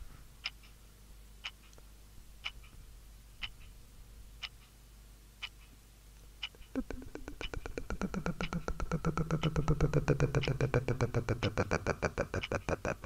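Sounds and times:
rapid even clicking: 0:06.4 - 0:13.0.

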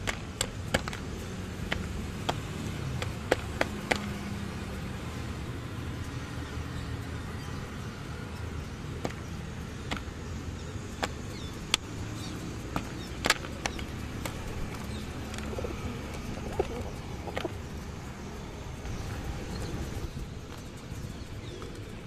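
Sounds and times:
city traffic rumble: 0:00.0 - 0:22.0
pigeons cooing: 0:13.0 - 0:20.2.

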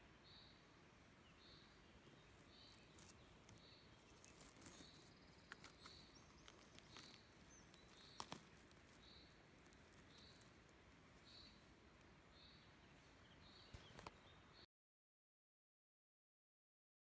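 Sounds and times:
dry needles and twigs crackling: 0:01.8 - 0:14.3.

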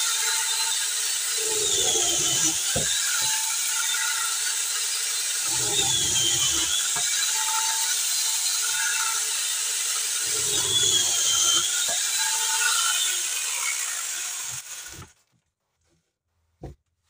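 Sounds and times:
angle grinder high whine: 0:00.0 - 0:14.8
chain sawing into wood: 0:01.3 - 0:03.4, 0:05.3 - 0:07.2, 0:10.1 - 0:12.8.

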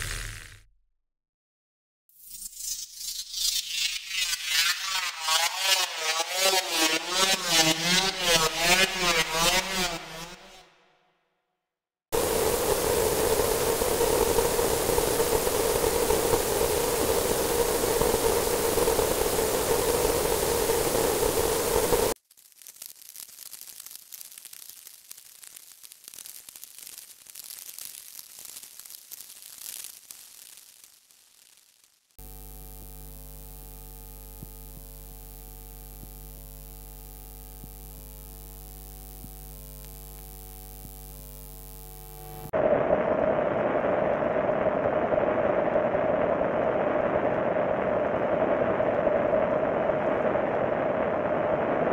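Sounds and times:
hum-like tone: 0:12.2 - 0:22.2, 0:32.2 - 0:51.9
white-noise hiss: 0:12.2 - 0:51.9.

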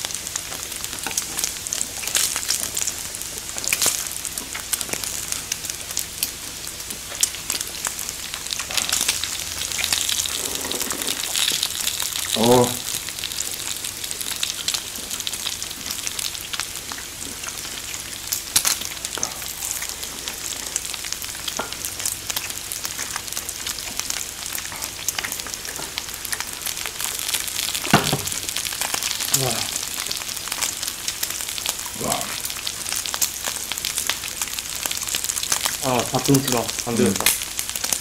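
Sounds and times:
meat sizzling on a grill plate: 0:00.0 - 0:38.0
fat crackling and spitting: 0:07.0 - 0:21.5, 0:24.5 - 0:33.5.

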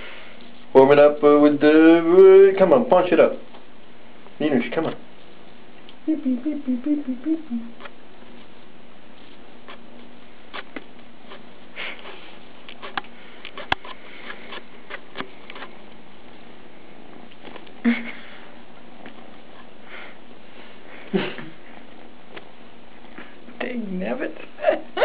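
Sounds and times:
kitten sniffing: 0:07.5 - 0:15.9.

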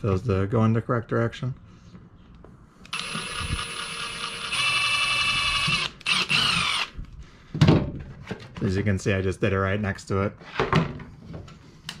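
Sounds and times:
cordless drill motor whine: 0:02.9 - 0:07.0.

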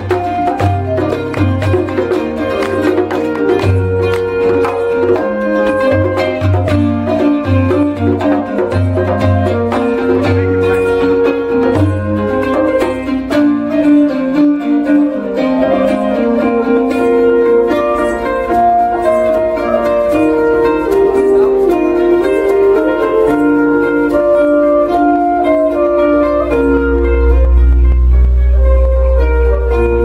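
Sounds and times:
end-blown flute melody: 0:00.0 - 0:09.1, 0:13.6 - 0:30.0
plucked string instrument: 0:00.0 - 0:30.0
deep low bass sound: 0:27.1 - 0:29.3.

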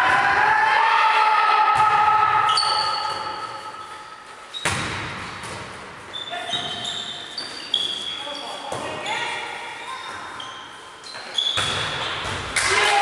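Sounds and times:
shoe squeaks on court: 0:02.5 - 0:04.8, 0:06.1 - 0:12.3.

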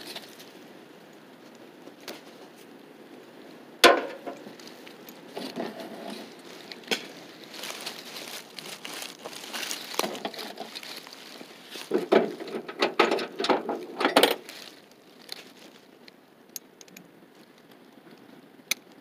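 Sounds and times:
rustling handling noise: 0:00.0 - 0:03.2, 0:03.8 - 0:16.1.

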